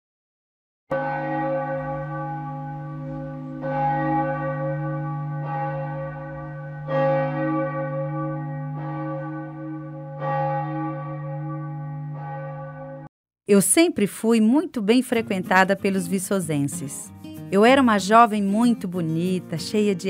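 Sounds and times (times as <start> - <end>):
large bell tolling: 0.9 - 13.1.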